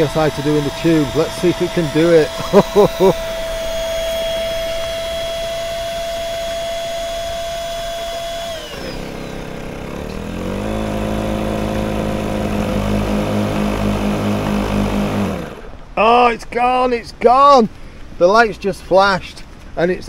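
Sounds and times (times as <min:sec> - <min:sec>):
electric pump whining: 0:00.0 - 0:16.0.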